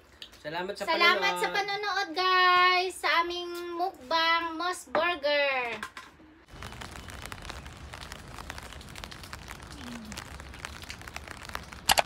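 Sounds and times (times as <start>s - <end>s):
crackling hiss with ticks: 6.5s - 12.0s.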